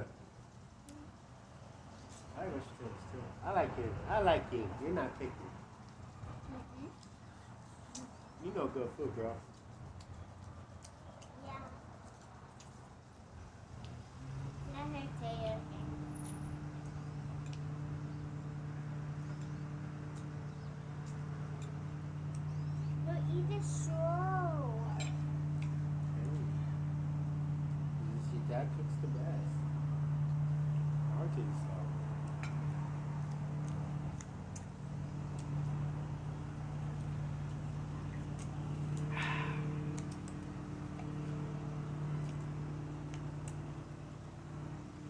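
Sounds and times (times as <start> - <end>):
low motor hum: 13.1 - 45.0.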